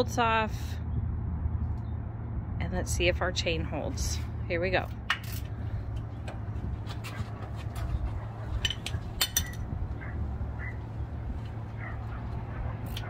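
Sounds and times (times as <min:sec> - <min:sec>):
steady low hum: 0:00.0 - 0:13.0
hand tools clinking on metal: 0:08.5 - 0:09.7.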